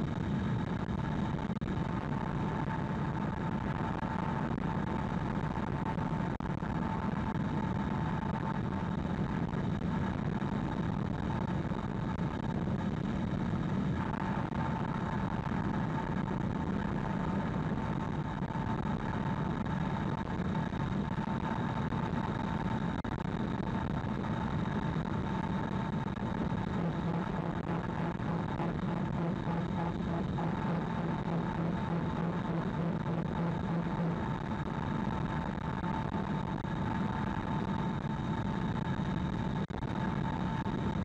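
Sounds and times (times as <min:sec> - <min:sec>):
faint high whine: 0:00.0 - 0:41.0
mid-pitched hum: 0:00.0 - 0:41.0.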